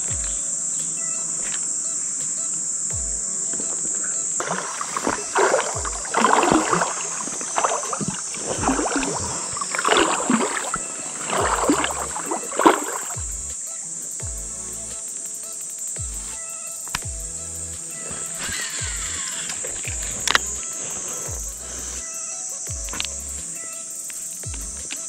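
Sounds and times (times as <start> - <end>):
insects droning: 0.0 - 25.0
water splashing and sloshing: 3.1 - 13.4.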